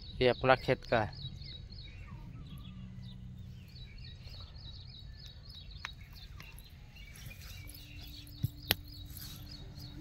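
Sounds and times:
small birds chirping: 0:00.0 - 0:10.0
low rumble: 0:01.1 - 0:06.1.

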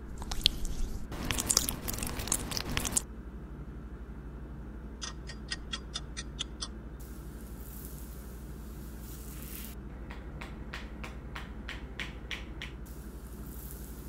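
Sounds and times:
wet gel crackling and squelching: 0:00.1 - 0:03.0.

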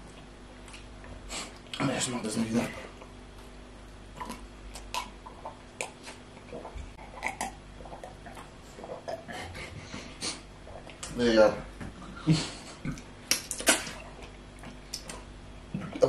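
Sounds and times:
sipping and swallowing water: 0:04.1 - 0:11.1
small clicks and mouth sounds: 0:04.2 - 0:09.3, 0:10.7 - 0:11.2, 0:12.8 - 0:16.0.

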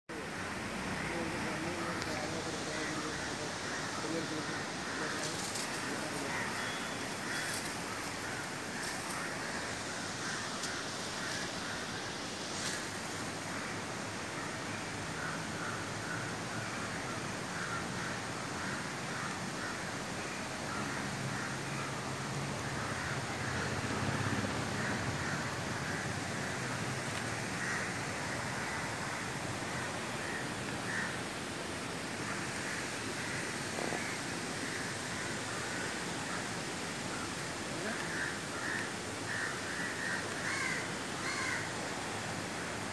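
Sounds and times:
birds calling: 0:00.1 - 0:13.8, 0:22.6 - 0:42.9
steady hiss: 0:00.1 - 0:42.9
crows cawing: 0:00.2 - 0:22.0, 0:22.6 - 0:42.1.

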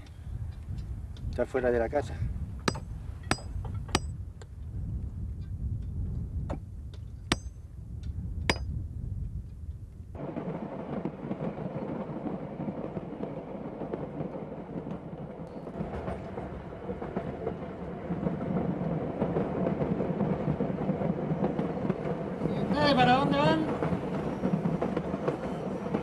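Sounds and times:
metal strikes on rail track: 0:02.6 - 0:04.2, 0:07.3 - 0:07.6, 0:08.5 - 0:08.7
moving train rumble and rattle: 0:11.0 - 0:26.0.

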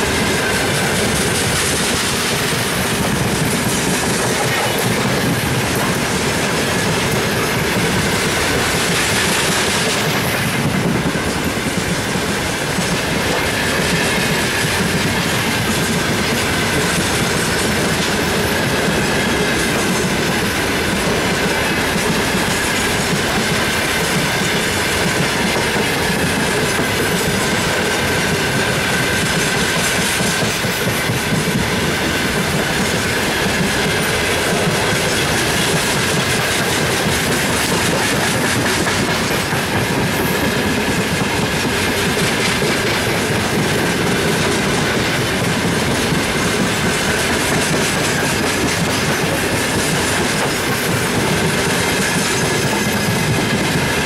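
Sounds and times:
train wheels rumbling and clattering: 0:00.0 - 0:54.0.

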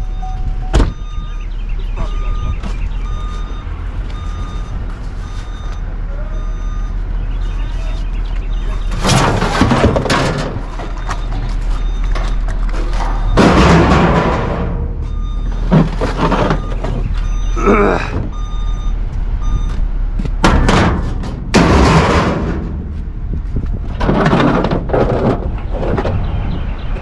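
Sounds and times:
scrap metal clanging into dumpster: 0:08.6 - 0:17.4, 0:20.4 - 0:23.0, 0:23.9 - 0:26.1.

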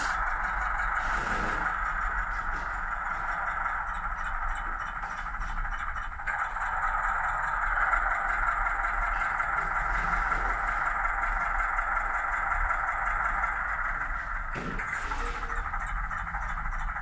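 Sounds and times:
model diesel engine sound: 0:00.0 - 0:17.0.

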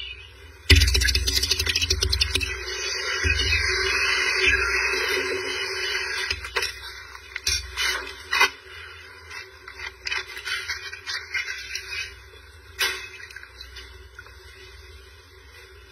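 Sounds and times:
water splashing in metal basin: 0:00.7 - 0:02.6.

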